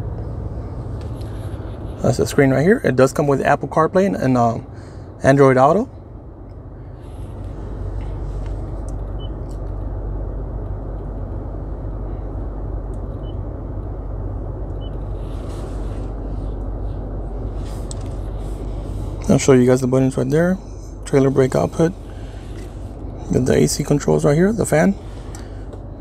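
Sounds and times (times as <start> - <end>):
truck engine idling: 0.0 - 26.0.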